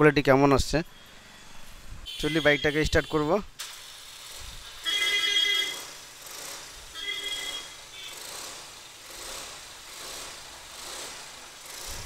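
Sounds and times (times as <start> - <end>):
electric starter burst: 3.6 - 12.0
scooter engine idling: 3.8 - 12.0.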